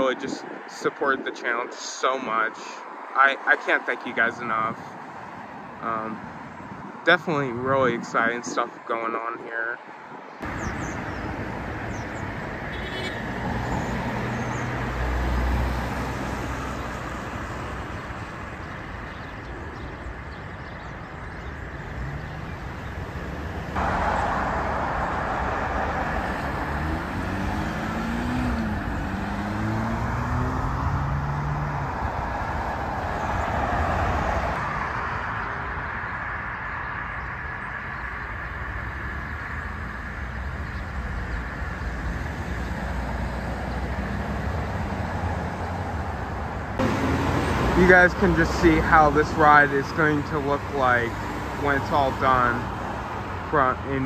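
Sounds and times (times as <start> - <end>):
road traffic passing: 0.0 - 54.0
vehicle accelerating away: 21.9 - 36.1, 41.2 - 52.6.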